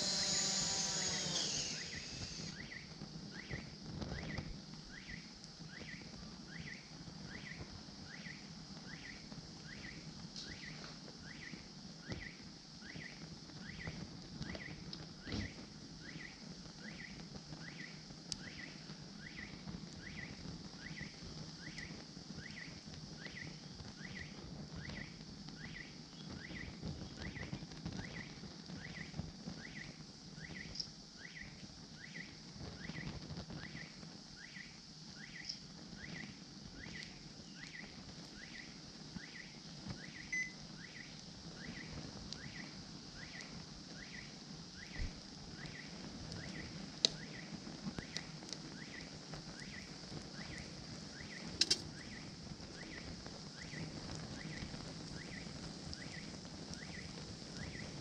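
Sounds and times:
low flame noise: 0:00.0 - 0:58.0
sharp pops: 0:51.6 - 0:51.9.

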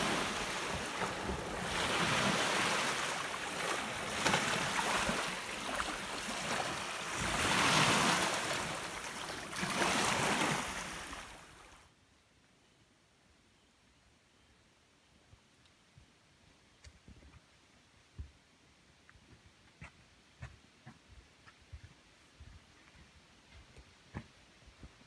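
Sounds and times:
waves washing onto sandy beach: 0:00.0 - 0:11.8.

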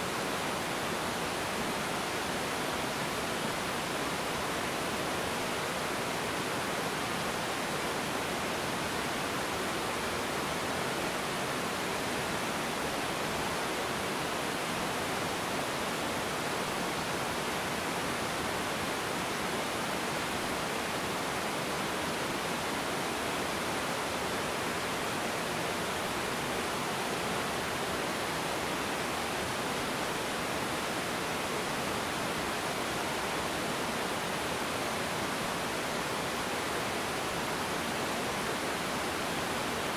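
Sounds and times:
waterfall rushing over stones: 0:00.0 - 0:39.9.

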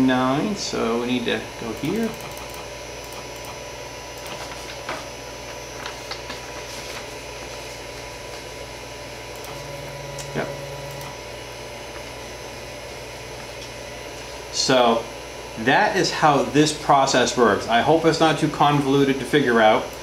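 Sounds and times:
printer fan and electrical hum: 0:00.0 - 0:20.0
low motor tone: 0:09.3 - 0:13.4.

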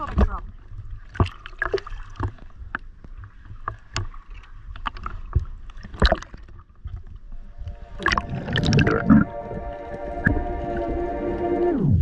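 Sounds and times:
small waves slapping: 0:00.0 - 0:09.3
sea water lapping and splashing: 0:00.0 - 0:12.0.

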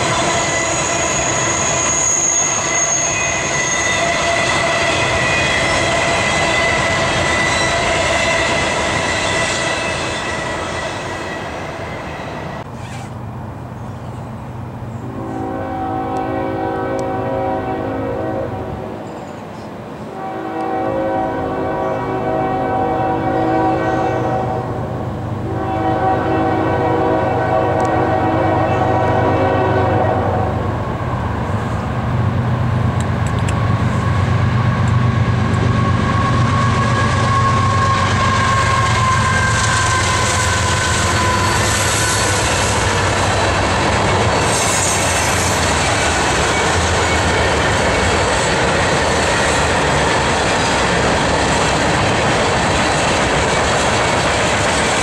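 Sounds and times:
locomotive air horn: 0:00.0 - 0:13.1, 0:15.0 - 0:18.8, 0:20.1 - 0:24.8, 0:25.4 - 0:30.7, 0:35.6 - 0:43.2
locomotive engine drone: 0:23.2 - 0:55.0
train wheels clattering on rail: 0:32.7 - 0:55.0.

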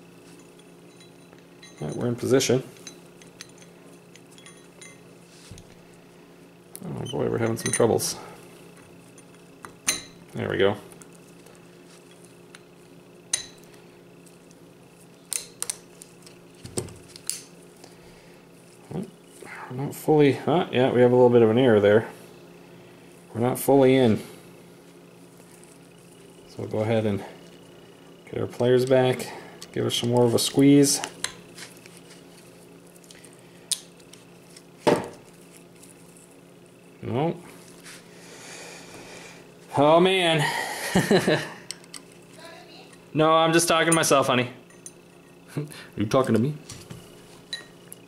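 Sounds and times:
faint steady hum: 0:00.0 - 0:48.0.

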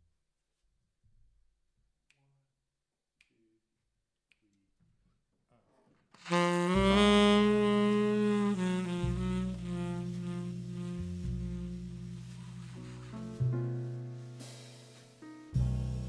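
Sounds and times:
finger snaps: 0:02.1 - 0:02.3, 0:04.3 - 0:04.6
tenor saxophone long note: 0:06.2 - 0:13.4
double bass: 0:06.3 - 0:16.0.

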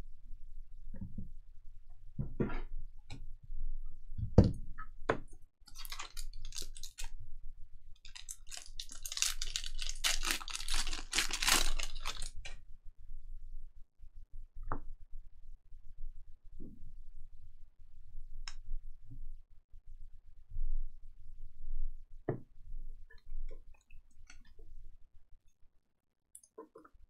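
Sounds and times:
wrappers and cards crinkling: 0:05.7 - 0:07.2, 0:08.0 - 0:12.4.

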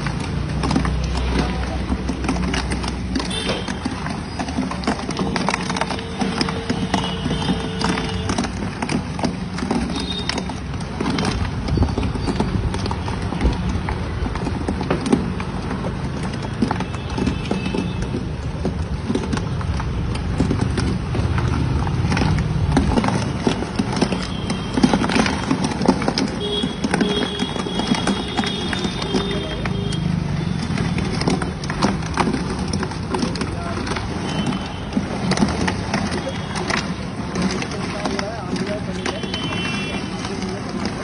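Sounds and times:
street background noise: 0:00.0 - 0:41.0.

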